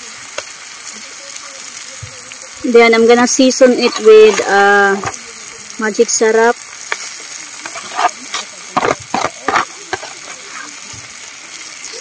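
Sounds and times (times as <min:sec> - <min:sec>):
food sizzling in a wok: 0:00.0 - 0:12.0
metal spoon scraping a pan: 0:03.0 - 0:05.2, 0:06.8 - 0:10.8.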